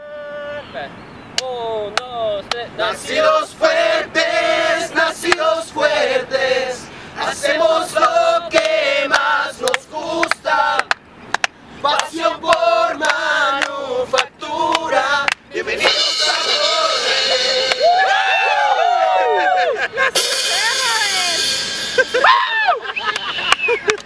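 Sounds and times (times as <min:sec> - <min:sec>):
group singing in harmony: 0:02.8 - 0:11.0, 0:11.8 - 0:17.8.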